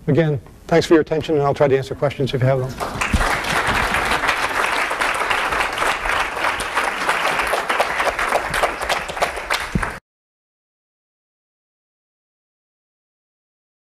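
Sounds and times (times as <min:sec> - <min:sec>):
audience applauding: 0:02.8 - 0:10.0.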